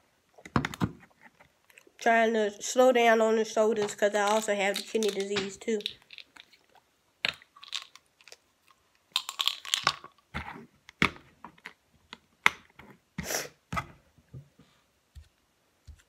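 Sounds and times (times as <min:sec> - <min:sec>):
plastic pill bottle clicks and taps: 0:03.8 - 0:06.5.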